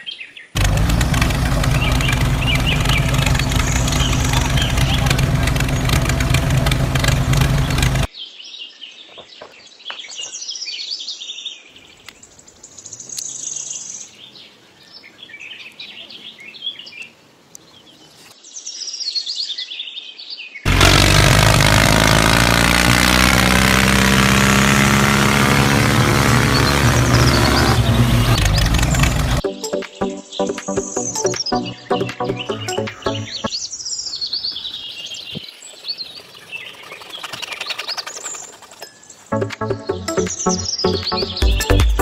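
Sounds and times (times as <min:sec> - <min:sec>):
birds chirping: 0:00.0 - 0:10.8, 0:20.7 - 0:29.4, 0:30.4 - 0:42.0
tractor engine running: 0:00.6 - 0:08.1, 0:20.7 - 0:29.4.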